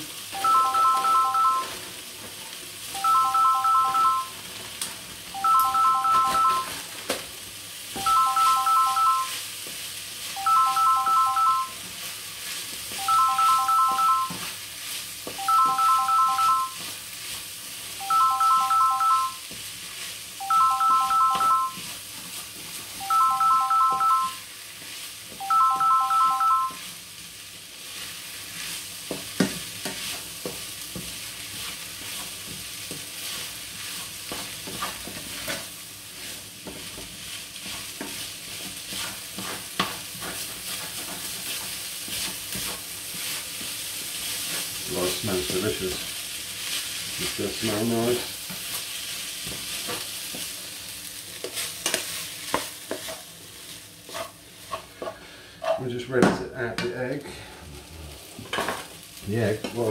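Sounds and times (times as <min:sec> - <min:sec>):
food sizzling in frying pan: 0:00.0 - 0:59.9
phone ringtone beeps: 0:00.4 - 0:01.8, 0:02.9 - 0:04.4, 0:05.4 - 0:06.8, 0:08.0 - 0:09.4, 0:10.4 - 0:11.8, 0:13.0 - 0:14.4, 0:15.4 - 0:16.8, 0:18.0 - 0:19.4, 0:20.4 - 0:21.8, 0:23.0 - 0:24.5, 0:25.4 - 0:26.8
spatula stirring: 0:27.9 - 0:44.9, 0:51.4 - 0:55.9.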